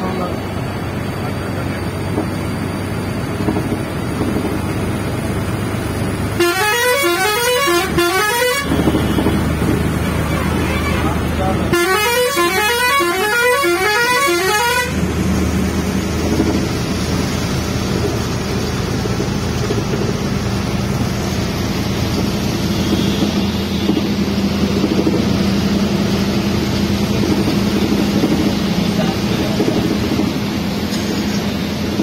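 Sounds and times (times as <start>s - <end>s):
bus engine drone: 0.0s - 32.0s
road noise inside cabin: 0.0s - 32.0s
vehicle horn stepped tune: 6.4s - 9.2s.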